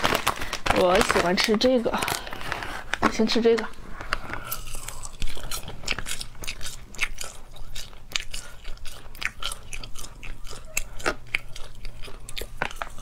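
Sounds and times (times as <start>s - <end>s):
person chewing snack: 3.9s - 13.0s.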